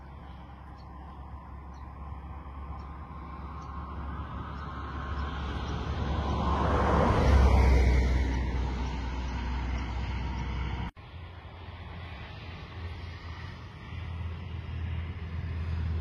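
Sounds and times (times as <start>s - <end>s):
vehicle passing by: 0.0s - 16.0s.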